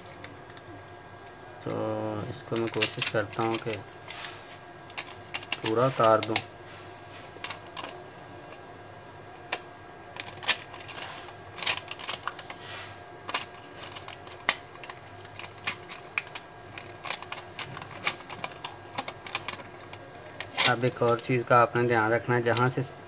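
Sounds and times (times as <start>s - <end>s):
foil label peeling crackles: 10.2s - 21.2s.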